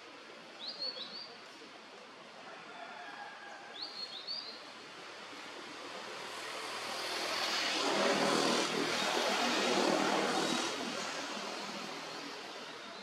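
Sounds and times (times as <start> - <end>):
broad rushing noise: 4.7 - 13.0.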